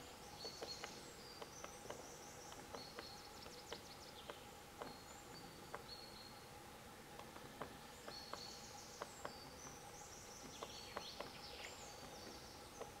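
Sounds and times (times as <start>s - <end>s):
small birds singing: 0.0s - 13.0s
woodpecker tapping on bark: 0.4s - 5.0s, 7.1s - 9.8s, 10.4s - 13.0s.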